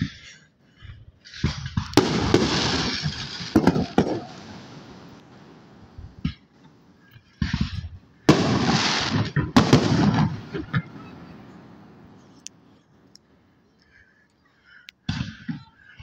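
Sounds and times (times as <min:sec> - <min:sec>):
fireworks bangs: 0:01.2 - 0:06.6, 0:07.4 - 0:12.4, 0:15.1 - 0:16.0
fireworks crackling: 0:01.2 - 0:12.8.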